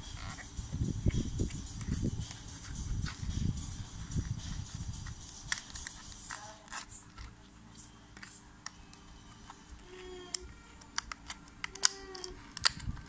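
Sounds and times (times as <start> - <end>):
plastic packaging crackling: 8.2 - 13.0.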